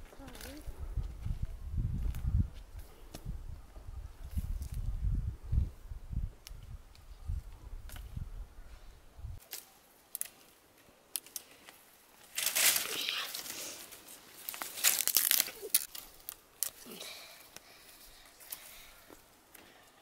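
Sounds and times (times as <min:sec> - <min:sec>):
twigs snapping: 0:09.4 - 0:19.7
dry brush rustling and crackling: 0:09.4 - 0:19.8.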